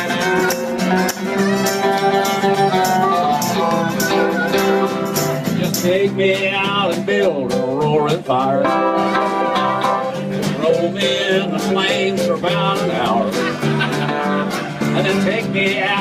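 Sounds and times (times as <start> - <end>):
harmonica lead line: 0.0 - 6.0, 8.6 - 16.0
strummed acoustic guitars: 0.0 - 16.0.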